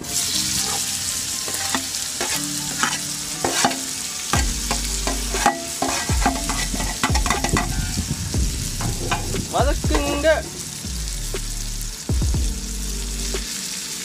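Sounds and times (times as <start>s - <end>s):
food sizzling in hot oil: 0.0s - 14.0s
spatula scraping steel plate: 0.6s - 8.0s.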